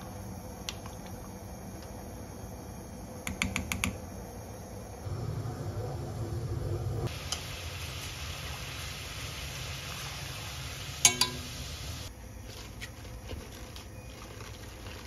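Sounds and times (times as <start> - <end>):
food sizzling in a pan: 7.1 - 12.1
utensil clinking on cookware: 11.0 - 11.5.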